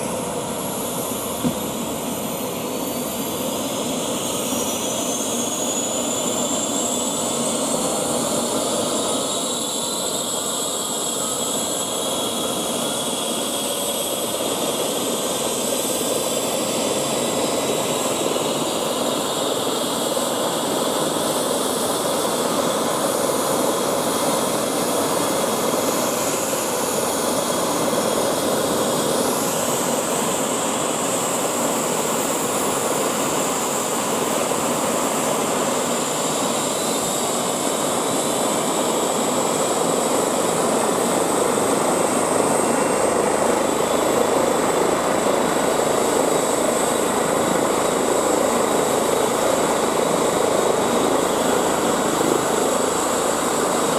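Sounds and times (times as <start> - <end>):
helicopter rotor noise: 0.0 - 53.9
helicopter turbine whine: 0.0 - 53.9.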